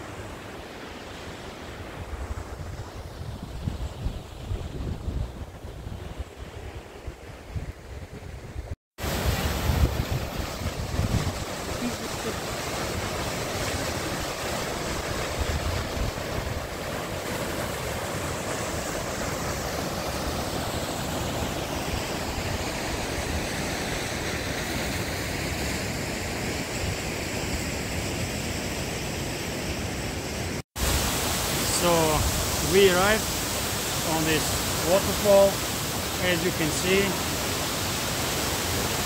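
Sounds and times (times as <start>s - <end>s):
wind buffeting microphone: 2.0s - 11.9s
water rushing: 9.0s - 39.0s.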